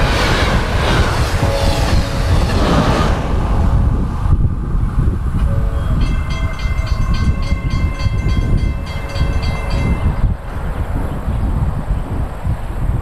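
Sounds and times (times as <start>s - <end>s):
low rumble of passing train: 0.0s - 13.0s
train horn chord: 1.3s - 2.6s, 5.4s - 10.1s.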